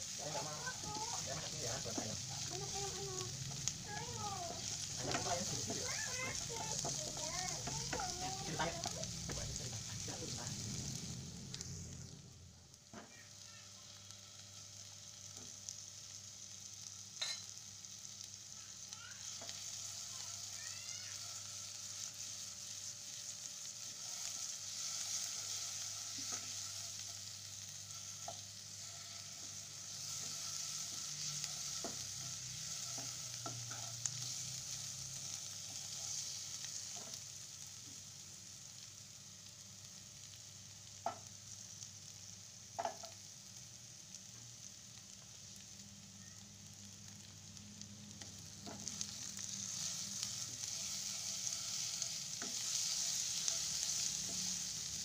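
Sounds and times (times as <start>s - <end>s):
shallots sizzling in oil: 0.0s - 55.0s
spatula stirring: 0.2s - 10.3s, 48.6s - 55.0s
spatula tapping pan: 42.8s - 43.2s.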